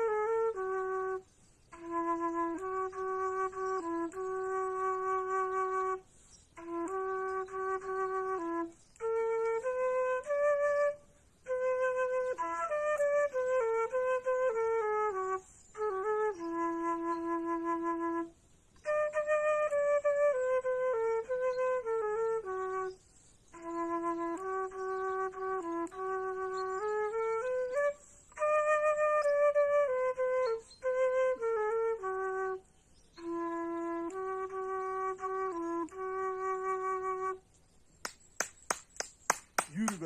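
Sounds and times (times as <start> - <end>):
solo flute melody: 0.0 - 40.0.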